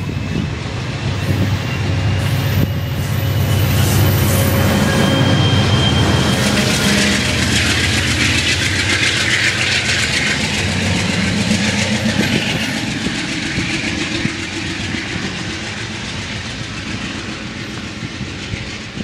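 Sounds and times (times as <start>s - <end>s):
diesel locomotive accelerating: 0.0s - 19.0s.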